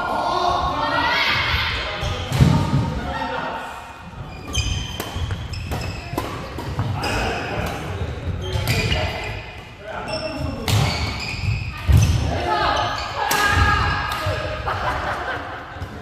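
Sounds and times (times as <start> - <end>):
sneakers squeaking: 4.1 - 14.5
racket hitting shuttlecock: 4.7 - 7.0.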